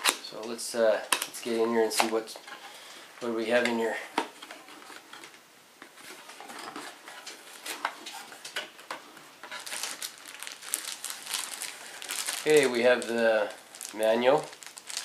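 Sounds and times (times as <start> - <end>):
plastic bag crinkling: 6.0 - 15.0
cardboard packaging sliding: 9.3 - 15.0.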